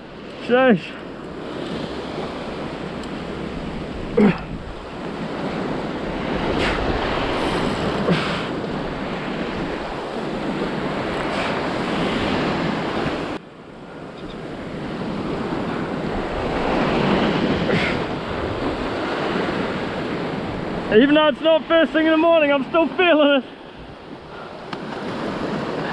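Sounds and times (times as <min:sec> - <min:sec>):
waves breaking on rocky shore: 0:00.0 - 0:25.9
wind on microphone: 0:01.3 - 0:20.9.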